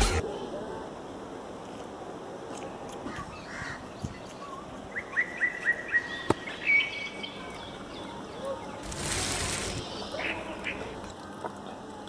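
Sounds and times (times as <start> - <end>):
steady background hiss: 0.0 - 12.0
birds calling: 3.0 - 11.4.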